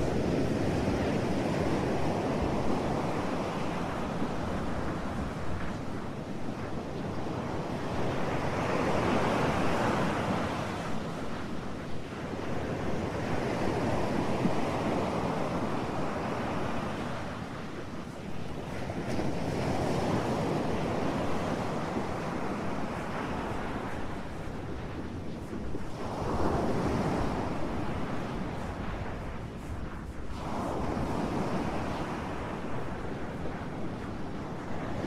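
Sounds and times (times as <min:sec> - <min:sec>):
ocean surf: 0:00.0 - 0:35.0.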